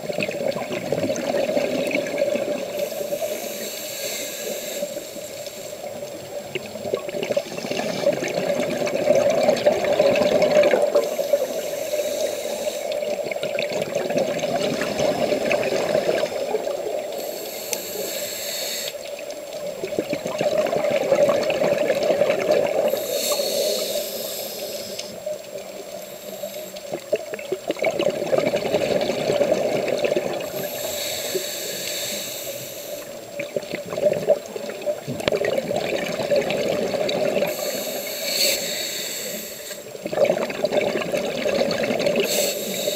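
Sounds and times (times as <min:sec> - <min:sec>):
exhaled bubbles rumbling: 0:00.0 - 0:03.3, 0:05.8 - 0:11.7, 0:12.9 - 0:17.2, 0:19.1 - 0:23.1, 0:26.8 - 0:30.9, 0:33.0 - 0:37.8, 0:39.8 - 0:42.3
regulator inhale hiss: 0:02.5 - 0:06.3, 0:10.6 - 0:13.4, 0:14.8 - 0:19.3, 0:22.8 - 0:27.2, 0:30.4 - 0:33.3, 0:37.4 - 0:40.0, 0:42.2 - 0:42.9.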